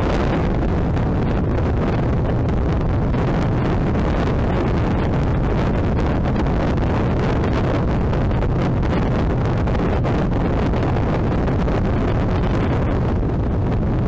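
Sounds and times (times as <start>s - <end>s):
motorcycle engine running: 0.0s - 14.0s
wind buffeting microphone: 0.0s - 14.0s.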